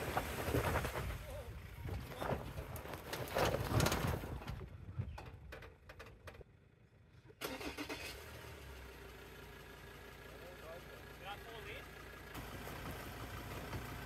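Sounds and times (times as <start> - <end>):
car engine starting and idling: 7.3 - 14.0.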